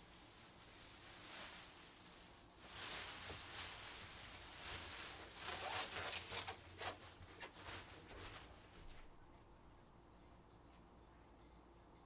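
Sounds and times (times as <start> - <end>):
rustling and scraping: 0.0 - 9.2.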